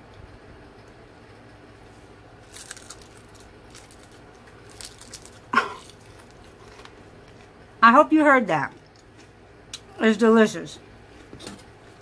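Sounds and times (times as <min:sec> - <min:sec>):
roasted chicken skin crackling: 0:02.0 - 0:07.7.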